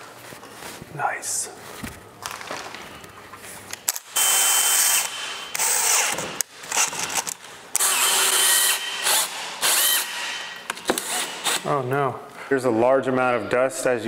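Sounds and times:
cordless drill driving screws: 4.0s - 11.6s.

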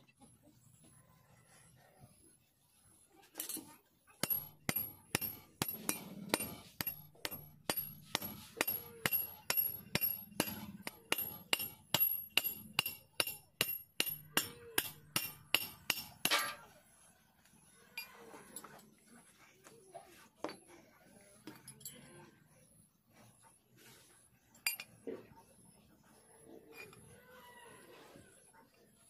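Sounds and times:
cleaver chopping on metal: 4.2s - 16.7s.

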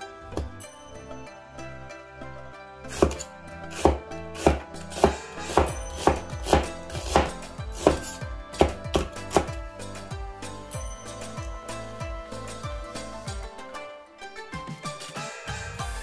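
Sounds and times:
knife slicing onion on board: 2.9s - 9.5s.

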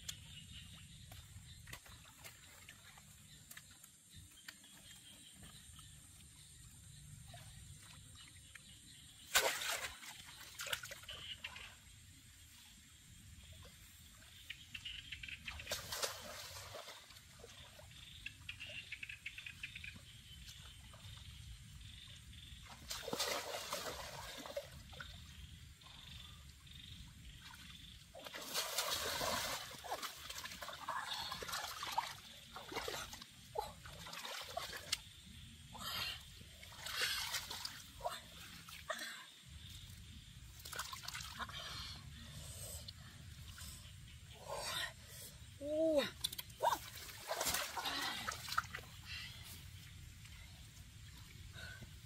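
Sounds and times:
water trickling and splashing: 0.1s - 12.2s, 12.8s - 18.6s, 19.9s - 26.6s, 27.2s - 44.4s, 45.7s - 52.0s.

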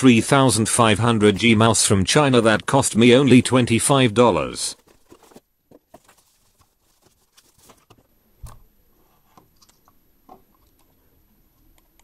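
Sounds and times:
computer mouse handling noise: 9.3s - 11.0s.

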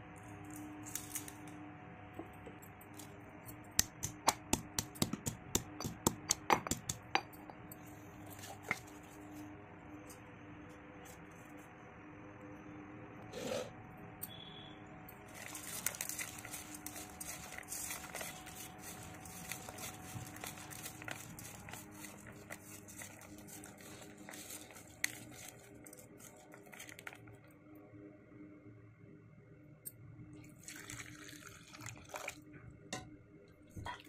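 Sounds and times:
hand squishing wet onions: 15.3s - 27.3s.

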